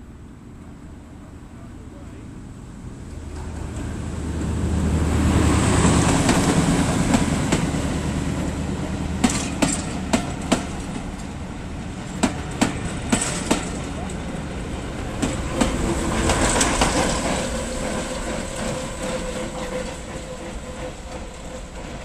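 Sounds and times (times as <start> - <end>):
diesel locomotive engine humming: 0.0 - 22.0
train wheels clicking over rail joints: 5.8 - 14.4, 15.0 - 22.0.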